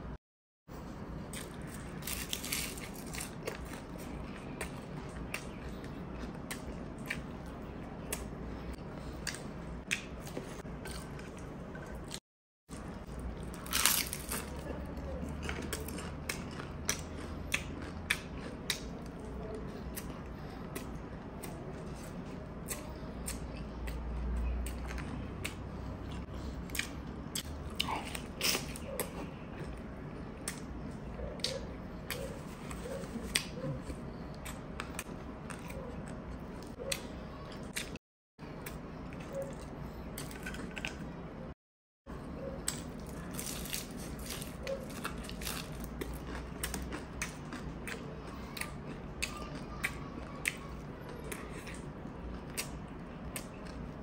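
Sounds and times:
biting and chewing: 0:01.2 - 0:41.5, 0:42.4 - 0:54.0
crisp crunches: 0:01.4 - 0:04.0, 0:13.4 - 0:14.6, 0:42.7 - 0:47.0.

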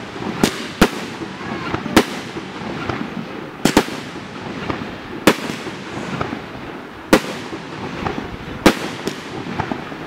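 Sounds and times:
fireworks bursting with sharp bangs: 0:00.0 - 0:10.0
faint firework pops: 0:07.1 - 0:09.9.

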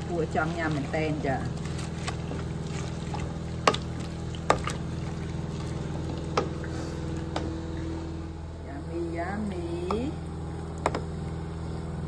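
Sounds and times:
soup sloshing in pot: 0:00.0 - 0:07.4
steady low hum: 0:00.0 - 0:12.0.

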